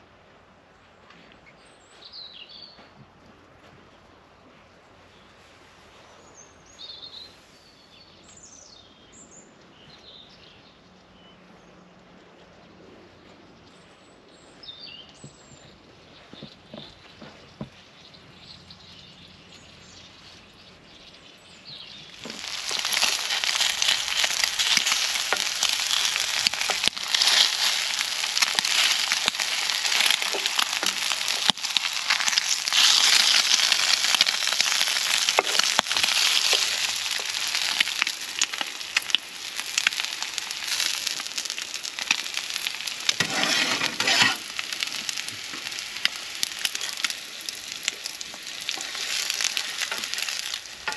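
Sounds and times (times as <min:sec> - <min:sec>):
food sizzling in a pan: 0:22.2 - 0:50.9.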